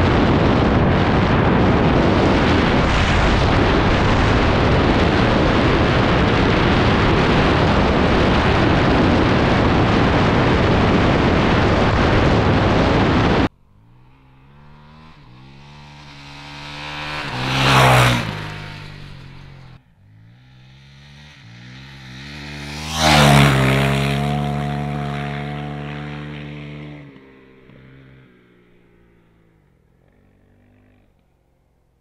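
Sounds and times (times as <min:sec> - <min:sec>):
wind rushing over camera: 0:00.0 - 0:28.9
motorcycle engine passing by: 0:00.0 - 0:32.0.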